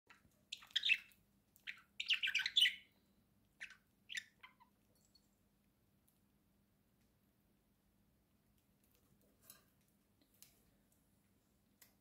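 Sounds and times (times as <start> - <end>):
budgerigar chirping and chattering: 0.5 - 2.9, 3.6 - 4.8.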